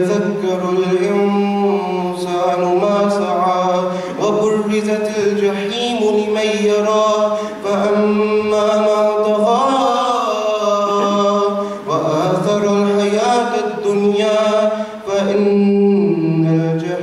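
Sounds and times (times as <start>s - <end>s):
man chanting melodically: 0.0s - 17.0s.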